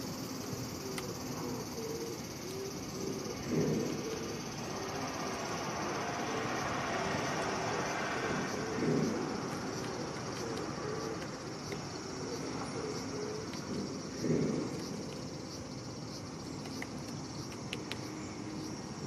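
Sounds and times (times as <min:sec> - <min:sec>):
insect drone: 0:00.0 - 0:19.0
road traffic rumble: 0:00.0 - 0:19.0.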